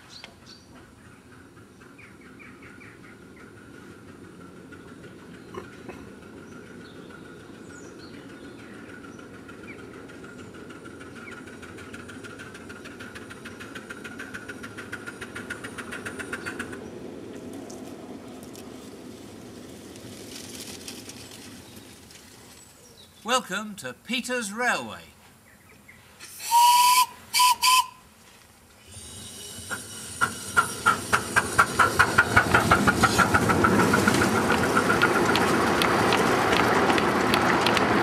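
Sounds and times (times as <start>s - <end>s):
steam locomotive chuffing: 1.2s - 17.3s, 26.2s - 28.0s, 28.8s - 38.0s
steam hissing: 26.2s - 28.0s, 28.8s - 35.7s.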